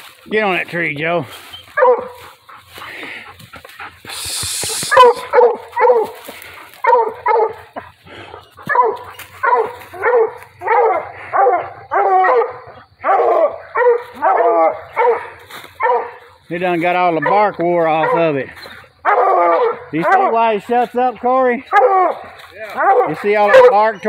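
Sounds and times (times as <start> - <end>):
hound barking: 1.4 - 24.0.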